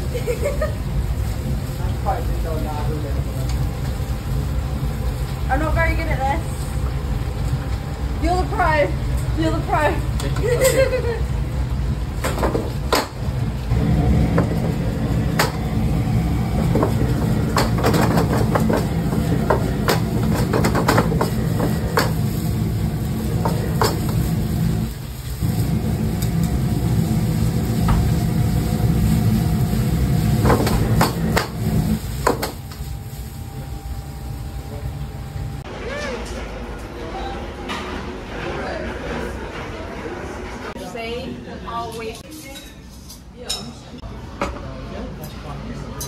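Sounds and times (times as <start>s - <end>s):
gas burner roar: 0.0s - 41.6s.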